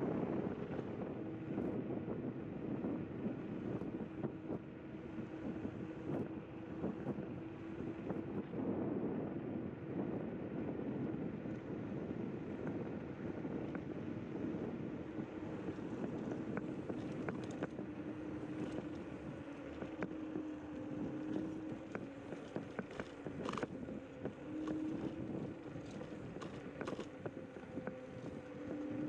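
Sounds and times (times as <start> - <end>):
electric scooter motor whine: 0.0 - 29.0
tyre and wind noise: 0.0 - 29.0
sharp clicks and rattles: 21.4 - 23.8.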